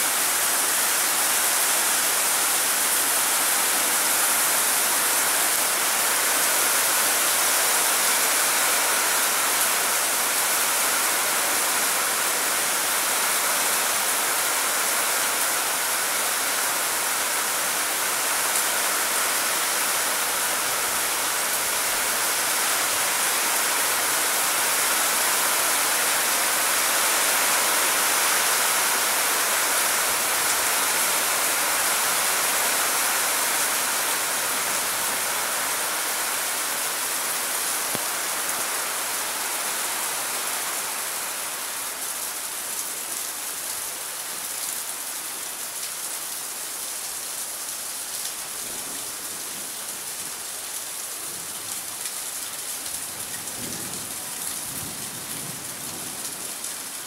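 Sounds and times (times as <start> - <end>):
rain falling steadily: 0.0 - 57.0.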